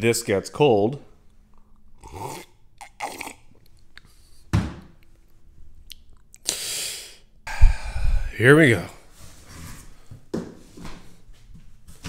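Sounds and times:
man slurping and gulping: 1.6 - 4.3, 5.9 - 8.4.

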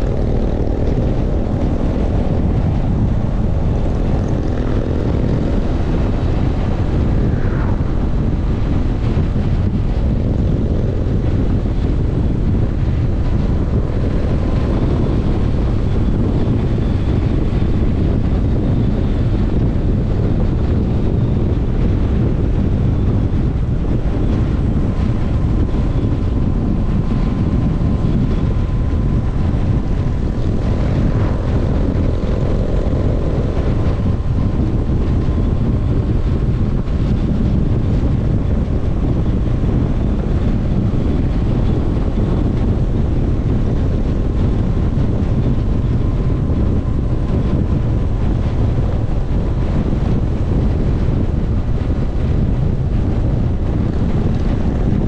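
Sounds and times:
faint steady whine: 0.0 - 55.0
wind rush on microphone: 0.0 - 55.0.

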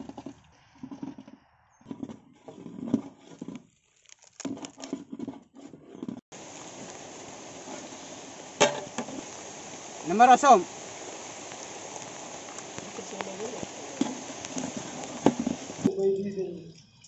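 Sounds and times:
steady hiss: 6.3 - 17.0.

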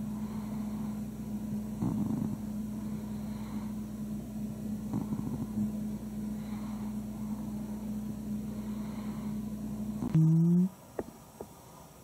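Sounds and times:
cat snoring softly: 0.0 - 3.9, 4.8 - 7.8, 8.5 - 10.8
steady low hum: 0.0 - 12.0.

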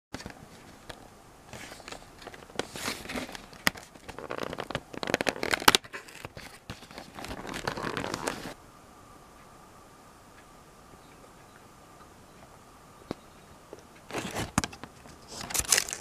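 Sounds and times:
cardboard tearing and crackling: 1.6 - 8.6, 15.3 - 16.0.

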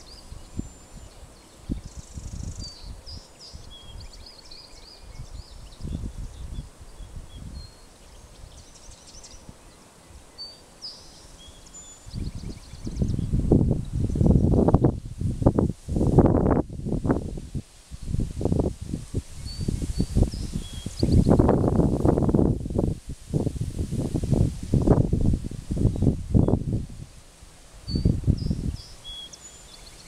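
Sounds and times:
wind rumbling on microphone: 0.0 - 10.4, 11.1 - 30.0
small birds chirping: 0.0 - 14.5, 19.2 - 21.8, 27.8 - 30.0.

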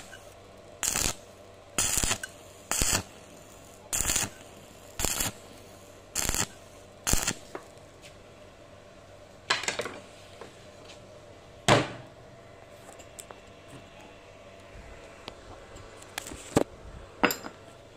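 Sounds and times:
stick welding arc crackling: 0.0 - 8.0.

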